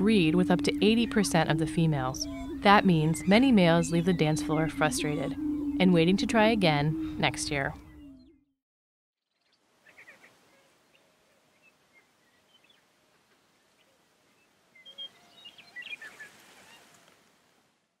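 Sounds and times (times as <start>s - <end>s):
prairie chickens calling: 0.0s - 8.2s, 14.8s - 17.1s.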